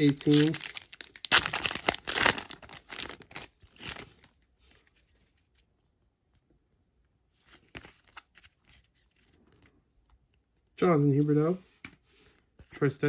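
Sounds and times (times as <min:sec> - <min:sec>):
foil wrapper crinkling: 0:00.0 - 0:04.3.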